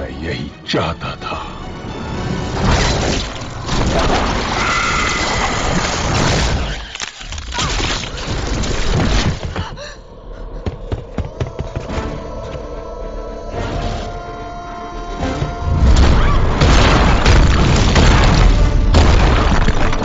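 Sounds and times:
booms: 0:15.8 - 0:20.0.

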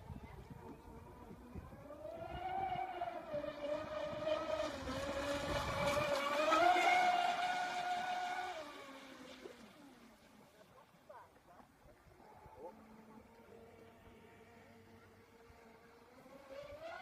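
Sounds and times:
electric motors whining: 0:00.8 - 0:10.3.

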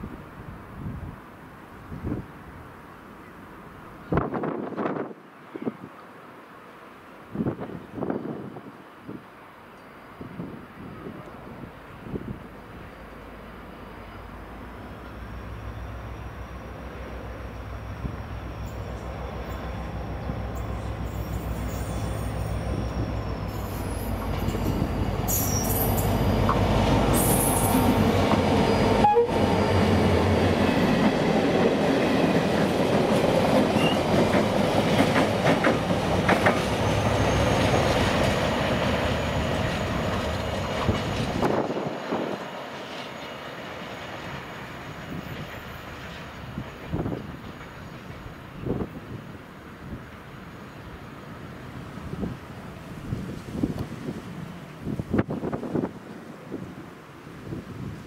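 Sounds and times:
thin wheel squeal: 0:21.1 - 0:24.7, 0:25.3 - 0:26.1.

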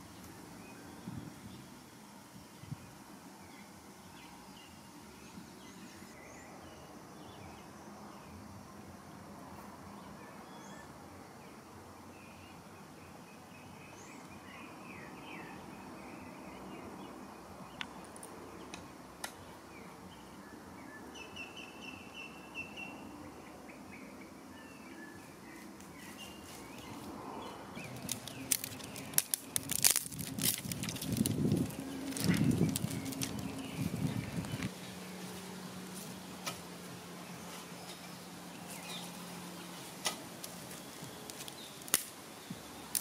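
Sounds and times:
birds chirping: 0:10.0 - 0:43.0
dry twigs snapping: 0:27.8 - 0:34.7, 0:40.0 - 0:42.2.

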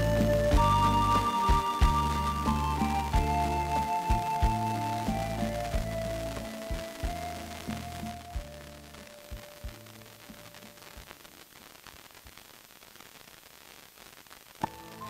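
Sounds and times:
song soft notes: 0:00.0 - 0:10.6
radio hiss and static: 0:00.0 - 0:15.0.

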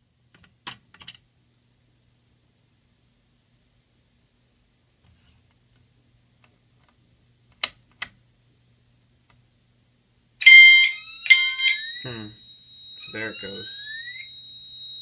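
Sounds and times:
fire alarm chime strokes: 0:10.4 - 0:15.0.

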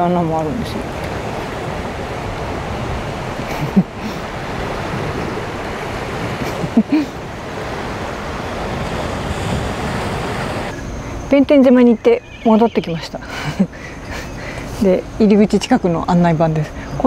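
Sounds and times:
sea waves washing against rocks: 0:00.0 - 0:10.7.

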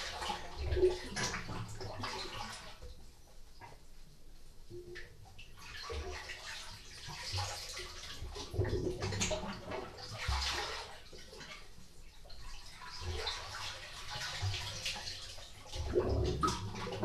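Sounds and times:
sea water surging in rock cave: 0:00.0 - 0:02.8, 0:06.0 - 0:11.2
low thumps of water: 0:00.0 - 0:03.8, 0:15.8 - 0:17.0.

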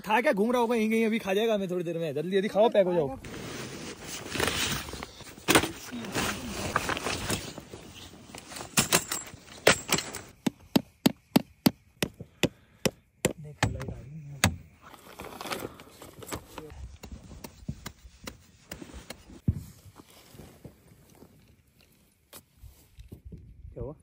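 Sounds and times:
camping gear rustling and clattering: 0:03.0 - 0:11.0, 0:14.6 - 0:23.6
rock hammering a tent peg: 0:10.3 - 0:14.6.

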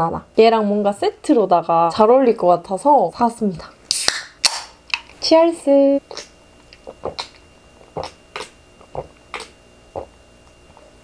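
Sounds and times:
person gulping soda: 0:06.1 - 0:10.2.

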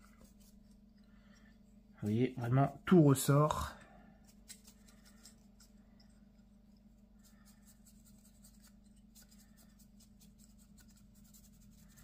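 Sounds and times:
paintbrush scratching: 0:00.0 - 0:01.0, 0:04.2 - 0:12.0
steady low hum: 0:00.0 - 0:12.0.

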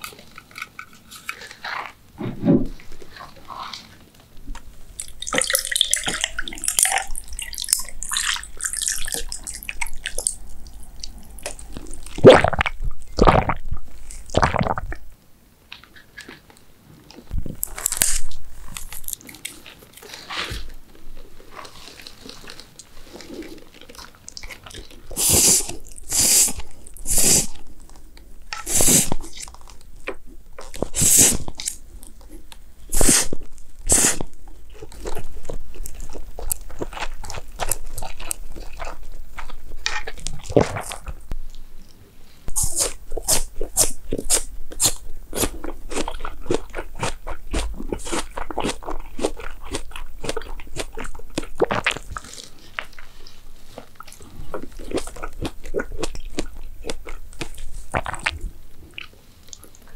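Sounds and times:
chewing crunchy food: 0:00.0 - 0:02.0, 0:02.8 - 0:15.0, 0:15.8 - 0:59.9
noodles slurping: 0:04.9 - 0:15.1, 0:21.4 - 0:29.9, 0:30.6 - 0:41.2, 0:42.5 - 0:59.9.

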